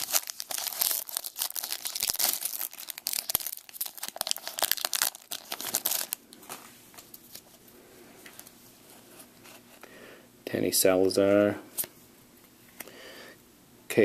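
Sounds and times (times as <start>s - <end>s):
foil wrapper crinkling and tearing: 0.0s - 7.5s.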